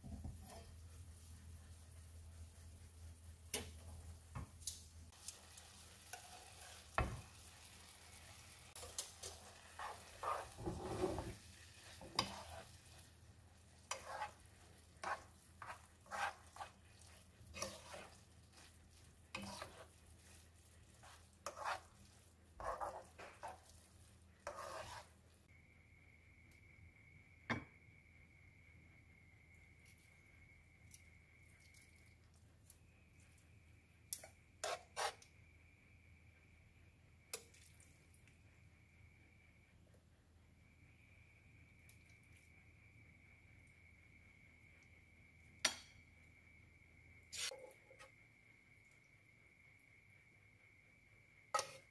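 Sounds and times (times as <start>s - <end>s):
faint sizzle: 0.0s - 51.9s
utensil scraping noodles in pan: 5.1s - 25.4s, 34.2s - 35.3s, 47.3s - 47.6s, 51.5s - 51.9s.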